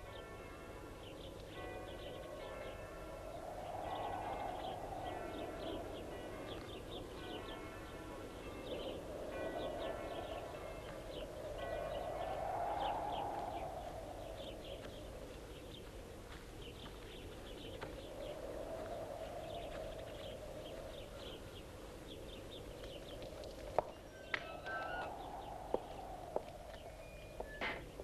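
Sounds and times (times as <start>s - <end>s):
small birds chirping: 11.9s - 28.0s.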